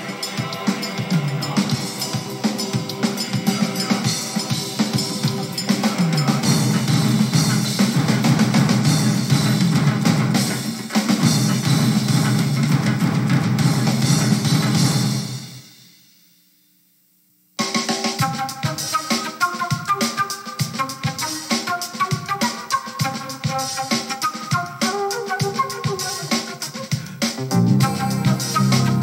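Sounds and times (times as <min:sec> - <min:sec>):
music with drum kit and bass: 0:00.0 - 0:16.6, 0:17.6 - 0:29.0.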